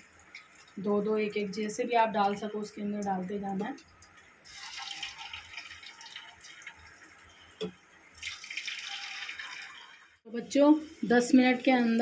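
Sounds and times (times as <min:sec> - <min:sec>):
potatoes sizzling in hot oil: 0:04.5 - 0:06.3.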